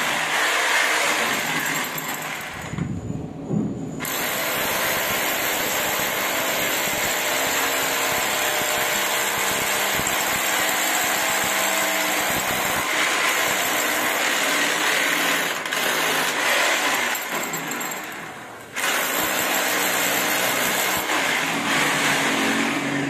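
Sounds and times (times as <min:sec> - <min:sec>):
electric drill boring into concrete: 0:00.0 - 0:03.0, 0:04.0 - 0:23.0.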